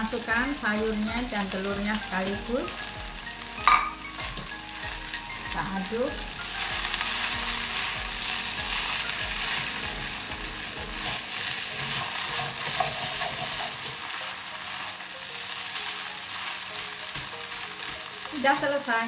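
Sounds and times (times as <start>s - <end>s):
food sizzling in a wok: 0.0s - 19.0s
spatula scraping pan: 6.4s - 14.8s.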